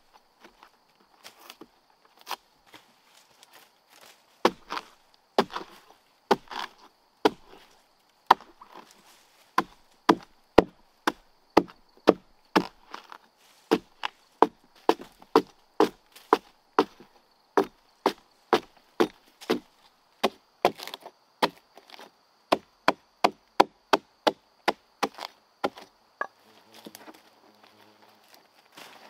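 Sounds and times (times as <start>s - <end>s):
wood being chopped: 4.4s - 8.9s, 9.6s - 25.9s.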